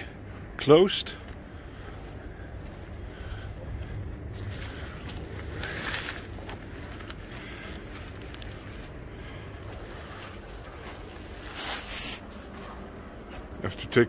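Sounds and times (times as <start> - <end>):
footsteps rustling through leaves: 4.3 - 13.6.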